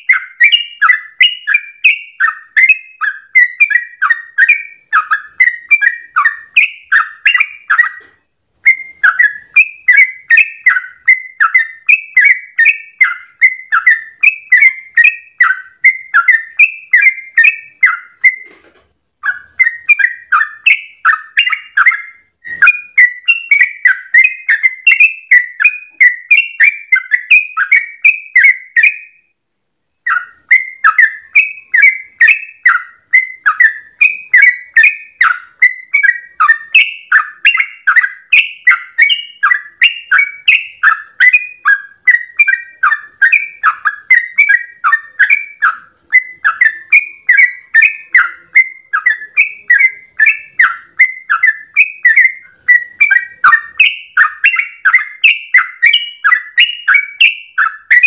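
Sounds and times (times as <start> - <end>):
bird singing bubbling whistles: 0.0 - 18.5, 19.2 - 29.3, 30.0 - 58.0.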